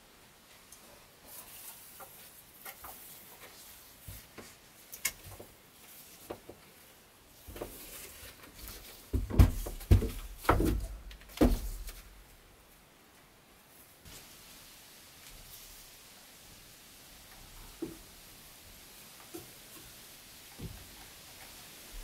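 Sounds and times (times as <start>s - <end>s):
footsteps on wooden steps: 7.4s - 12.2s.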